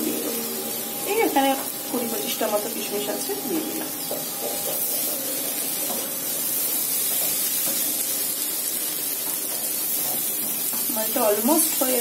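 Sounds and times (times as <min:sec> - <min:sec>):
food sizzling in a pan: 0:00.0 - 0:12.0
spatula stirring: 0:03.6 - 0:12.0.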